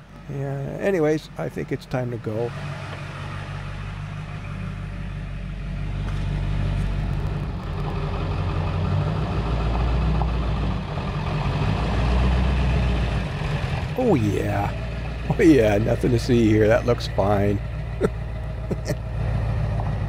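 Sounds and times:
pickup truck engine running: 0:00.0 - 0:20.0.

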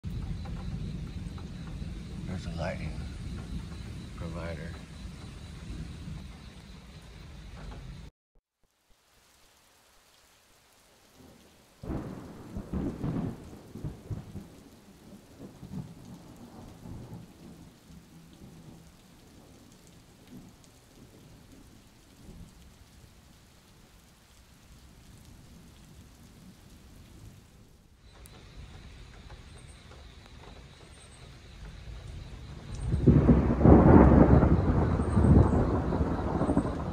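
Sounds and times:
thunderclap and rolling rumble: 0:00.0 - 0:08.1, 0:11.2 - 0:23.4, 0:28.1 - 0:36.9
steady rain: 0:00.0 - 0:36.9.

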